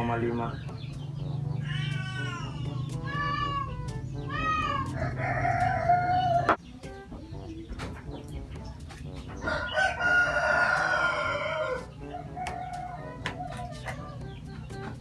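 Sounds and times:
cat meowing: 0:01.6 - 0:05.2.

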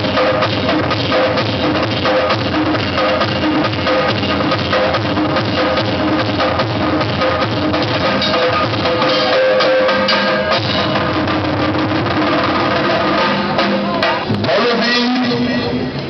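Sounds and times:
dance music with fast drumming: 0:00.0 - 0:15.4.

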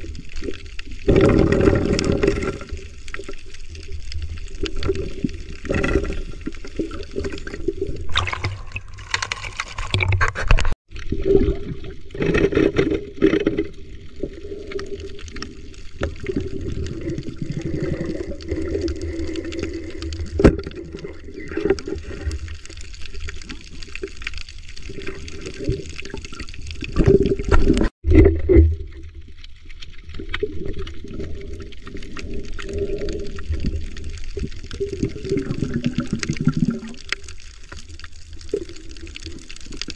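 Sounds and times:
underwater sloshing and bubbling: 0:00.0 - 0:39.9.

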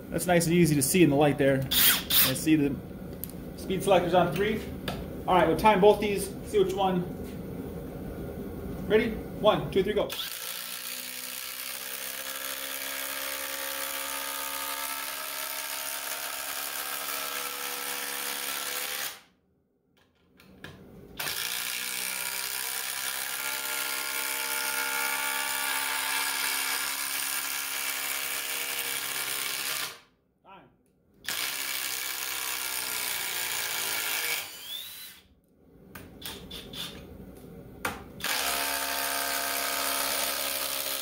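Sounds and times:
impact driver driving screw into wood: 0:01.7 - 0:02.4, 0:38.2 - 0:41.0.

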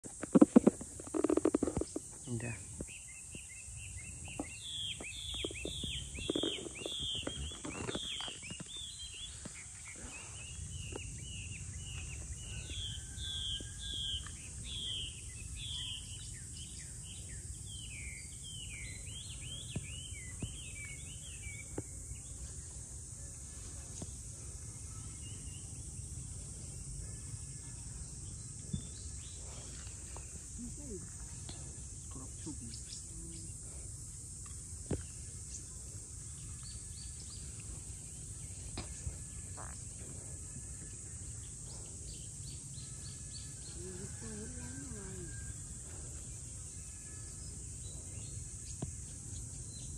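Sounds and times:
rustles and taps: 0:00.0 - 0:02.9
insect drone: 0:00.0 - 0:49.9
bird chirping: 0:00.2 - 0:22.8, 0:34.9 - 0:45.6.

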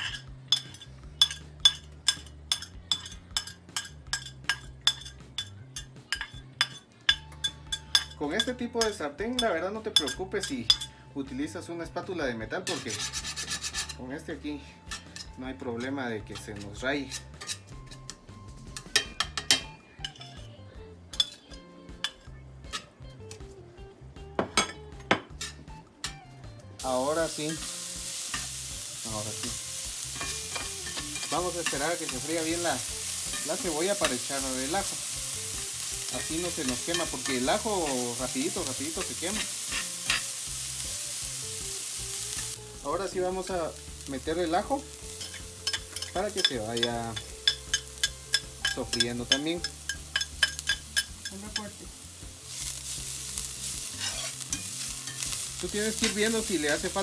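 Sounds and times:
metal spatula tapping skillet: 0:00.0 - 0:10.9, 0:14.9 - 0:15.4, 0:16.3 - 0:20.4, 0:21.1 - 0:22.9, 0:26.8 - 0:40.8, 0:45.0 - 0:52.0, 0:52.8 - 0:57.0
onion sizzling: 0:00.0 - 0:11.6, 0:12.6 - 0:20.4, 0:26.8 - 0:57.0.

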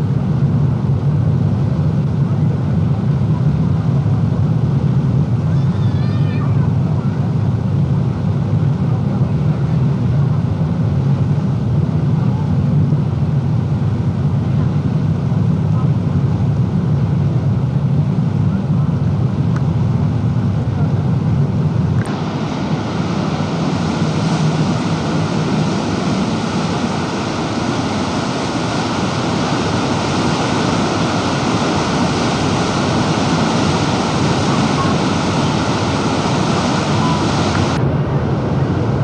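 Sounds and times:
low engine hum: 0:06.5 - 0:39.0
boat propeller wash rushing: 0:22.0 - 0:37.8.

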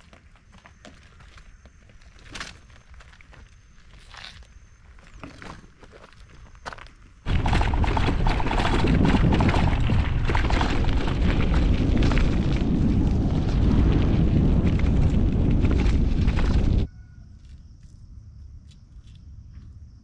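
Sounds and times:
tyres crackling on dirt: 0:00.0 - 0:16.9
wind buffeting microphone: 0:07.2 - 0:16.9.

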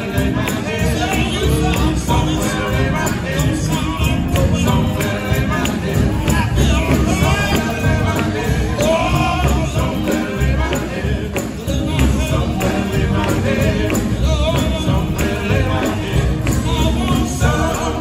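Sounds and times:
band with guitar keyboards drums: 0:00.0 - 0:18.0
male quartet singing in harmony: 0:00.0 - 0:18.0.

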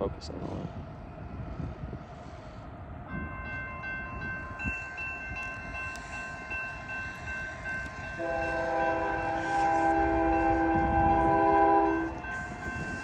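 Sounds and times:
freight train rumble: 0:00.0 - 0:13.0
crossing warning bell ringing: 0:03.1 - 0:13.0.

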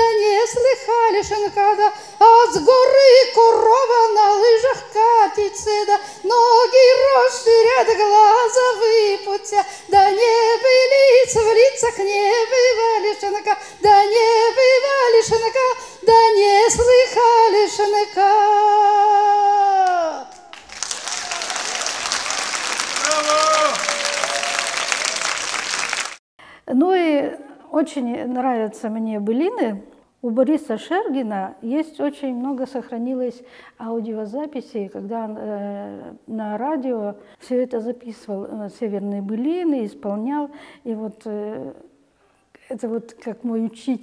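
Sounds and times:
woman singing folk song unaccompanied: 0:00.0 - 0:20.4, 0:26.8 - 0:41.9, 0:42.6 - 0:44.0
audience applause: 0:20.3 - 0:26.2.

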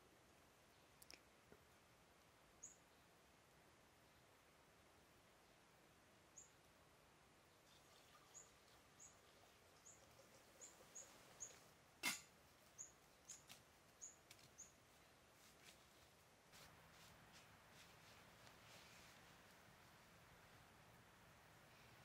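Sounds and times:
small bird chirping: 0:02.6 - 0:03.1, 0:06.3 - 0:06.7, 0:07.5 - 0:15.1.

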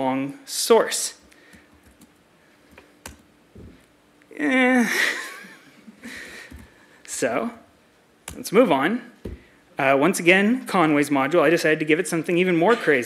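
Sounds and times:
person laughing: 0:04.7 - 0:06.5.

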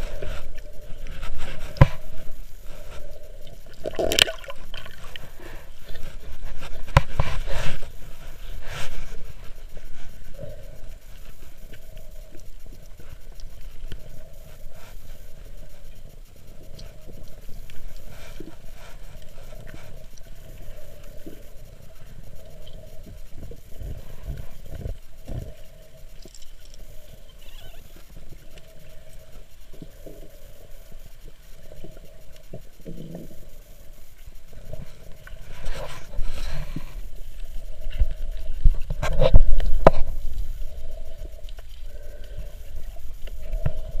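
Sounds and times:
underwater water movement: 0:00.0 - 0:44.0.

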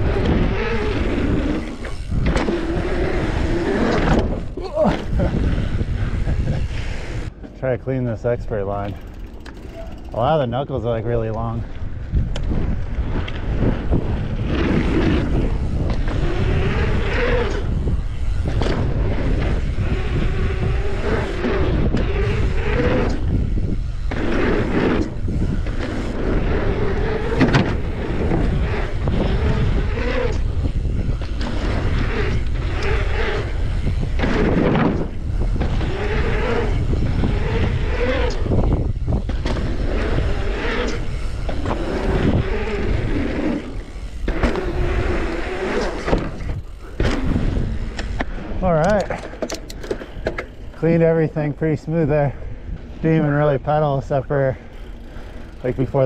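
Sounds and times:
wind on microphone: 0:00.0 - 0:07.4, 0:08.2 - 0:56.0
bike knocking and rattling: 0:00.0 - 0:56.0
bike tyres rolling: 0:00.0 - 0:56.0.

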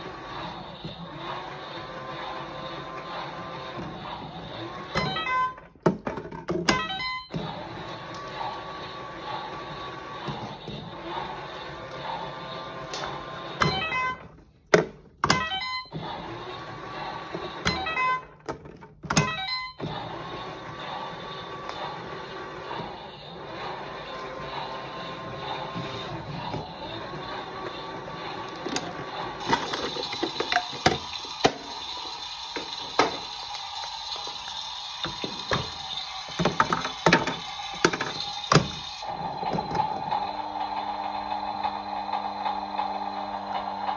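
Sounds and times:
small electric motor humming: 0:19.9 - 0:43.9.

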